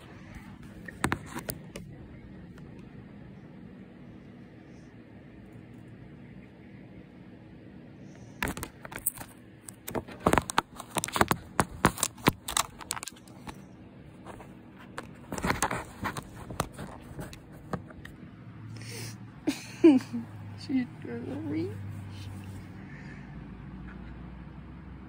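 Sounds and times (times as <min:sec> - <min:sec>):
cat clawing plastic basket: 0:08.4 - 0:13.4.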